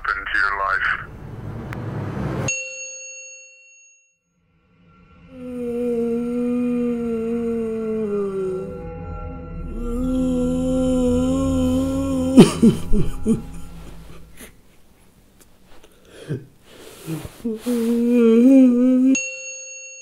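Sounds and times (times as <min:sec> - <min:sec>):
man crying: 0:09.8 - 0:14.6
sniffles: 0:16.1 - 0:18.1.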